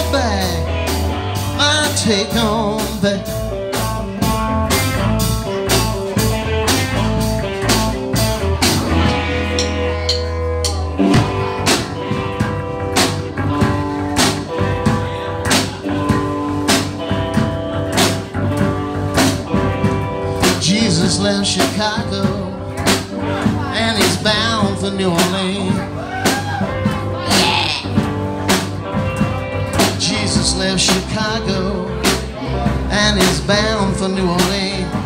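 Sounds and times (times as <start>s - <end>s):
electric guitars: 0.0s - 35.0s
steady drum beat: 0.0s - 35.0s.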